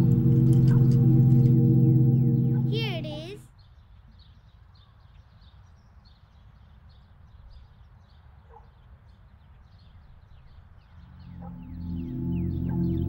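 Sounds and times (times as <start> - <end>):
low outdoor rumble: 0.0 - 3.4, 11.0 - 13.0
low ringing musical drone: 0.0 - 3.4, 11.0 - 13.0.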